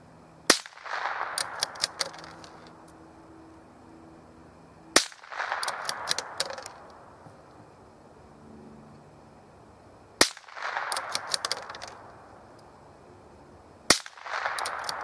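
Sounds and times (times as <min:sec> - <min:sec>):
rifle shots: 0:00.5 - 0:02.6, 0:05.0 - 0:07.0, 0:10.2 - 0:12.2, 0:13.9 - 0:15.0
sharp clicks: 0:00.5 - 0:03.0, 0:05.0 - 0:07.6, 0:10.2 - 0:12.7, 0:13.9 - 0:15.0.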